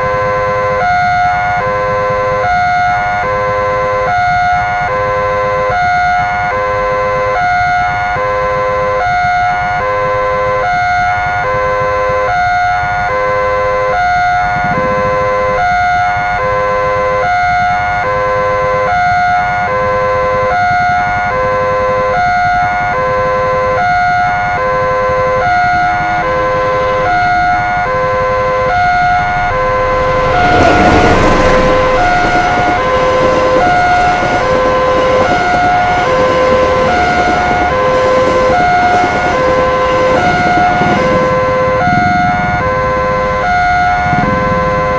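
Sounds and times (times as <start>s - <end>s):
railroad crossing alarm: 0.0s - 44.9s
train rushing past: 13.3s - 18.4s, 23.2s - 44.9s.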